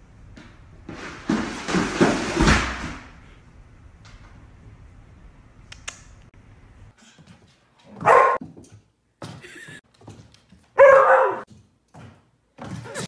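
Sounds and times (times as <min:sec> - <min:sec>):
dog barking: 0:08.0 - 0:08.4, 0:10.8 - 0:11.5.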